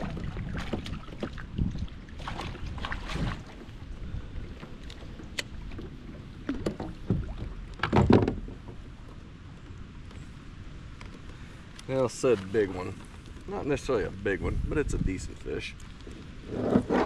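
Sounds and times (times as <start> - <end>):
water splashing: 0.0 - 9.2
knocks against a kayak: 6.5 - 8.8.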